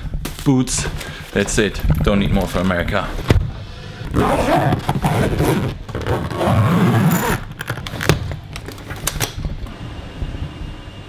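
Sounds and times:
suitcase scraping and rustling: 4.1s - 8.1s.

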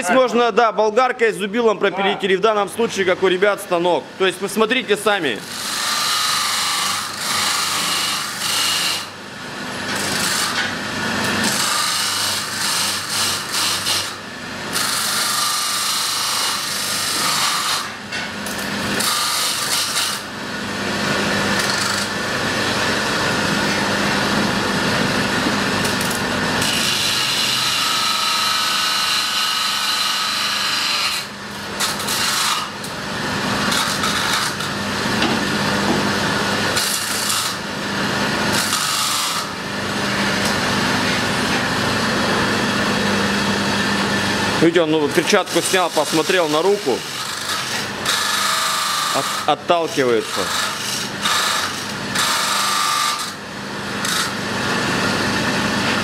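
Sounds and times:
power saw cutting steel: 5.2s - 9.2s, 9.8s - 18.0s, 18.7s - 20.3s, 25.4s - 56.0s.

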